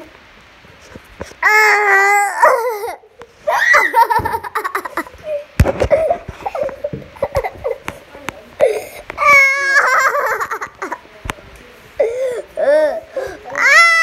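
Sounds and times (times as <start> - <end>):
child squealing and laughing: 1.4 - 5.5, 13.6 - 14.0.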